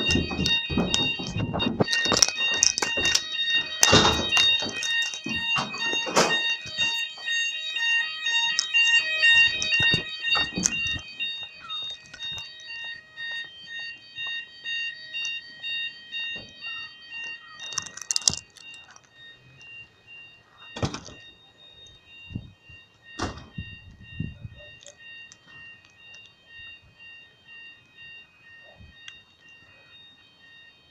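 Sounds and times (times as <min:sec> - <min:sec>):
knocks and bumps: 0:00.0 - 0:07.3
pulsing electronic fire alarm: 0:00.0 - 0:30.9.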